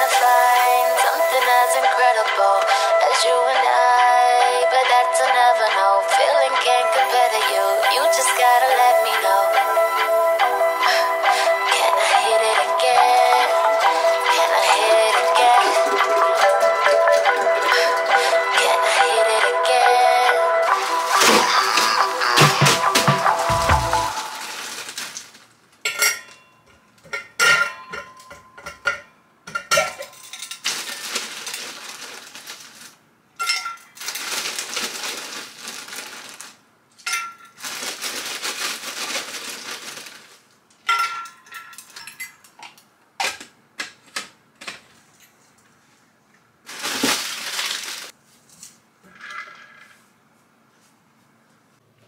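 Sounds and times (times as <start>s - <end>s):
tap water running: 0.0s - 1.9s
dishes and utensils clinking: 25.8s - 30.7s, 33.4s - 34.0s, 37.0s - 37.6s, 40.8s - 43.4s.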